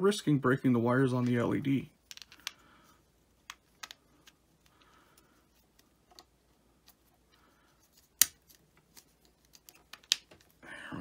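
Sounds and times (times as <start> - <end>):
plastic parts clicking: 2.0 - 2.6, 8.1 - 10.5.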